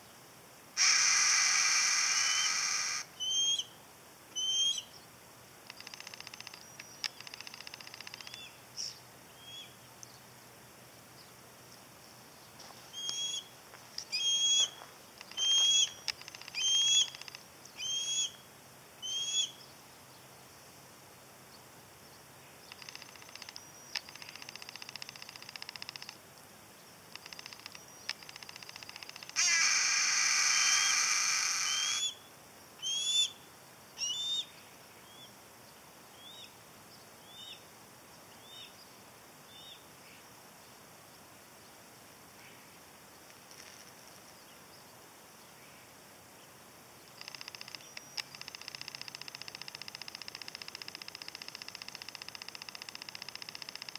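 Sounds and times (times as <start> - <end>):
hawk long harsh rasping call: 0.8 - 3.1, 29.4 - 32.1
hawk juvenile short rising squeals: 0.8 - 3.7, 14.1 - 16.0, 29.4 - 32.2.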